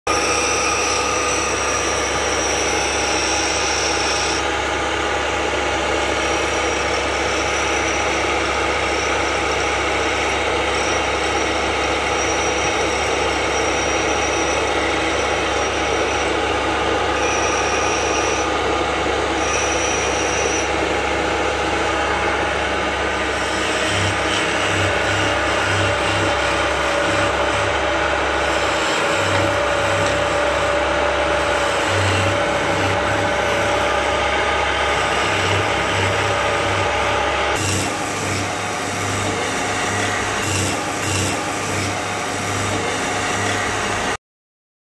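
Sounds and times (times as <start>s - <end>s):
high squeal: 0.1s - 41.4s
chisel cutting wood: 0.1s - 44.2s
wood lathe humming: 0.1s - 44.2s.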